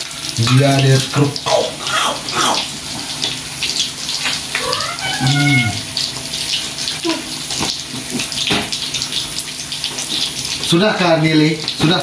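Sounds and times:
fish sizzling in oil: 0.0 - 12.0
person's voice: 0.4 - 2.7, 4.6 - 5.8.

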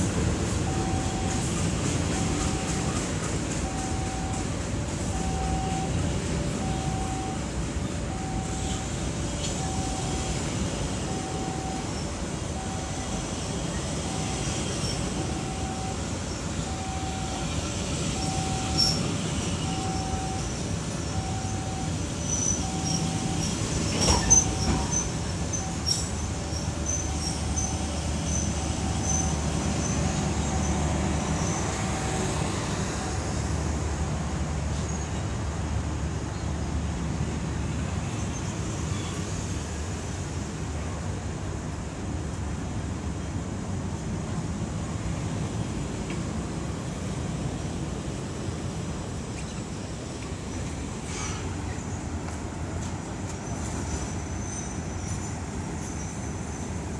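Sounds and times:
train carriages rolling on rails: 0.0 - 56.9
two-tone beeping signal: 0.7 - 1.5, 3.6 - 4.5, 5.1 - 7.5, 8.1 - 13.2, 14.0 - 23.6.

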